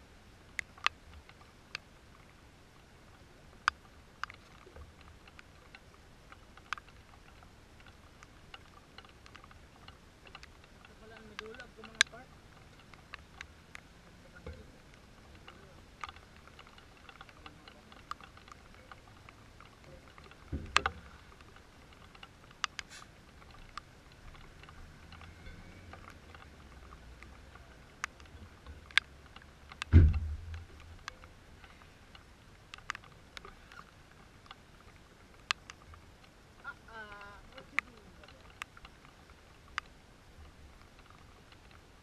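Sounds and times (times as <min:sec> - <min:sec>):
rain dripping and tapping: 0:00.0 - 0:42.0
dull thumps: 0:29.9 - 0:30.7.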